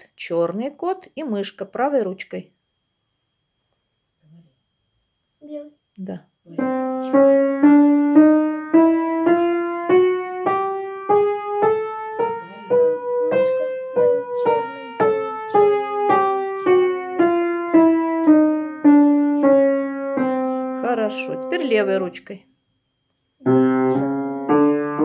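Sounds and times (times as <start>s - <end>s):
upright piano chromatic scale: 6.6s - 22.2s, 23.4s - 25.0s.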